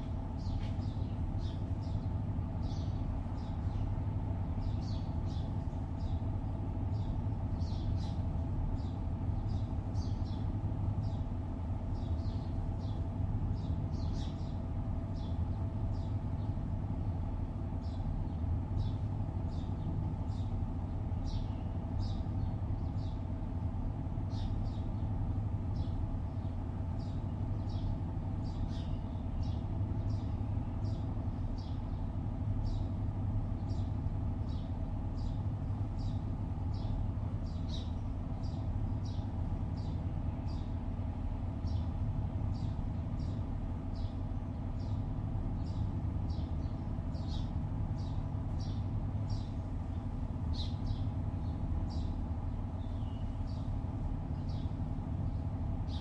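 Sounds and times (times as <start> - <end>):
birds chirping: 0.0 - 56.0
distant city traffic hum: 0.0 - 56.0.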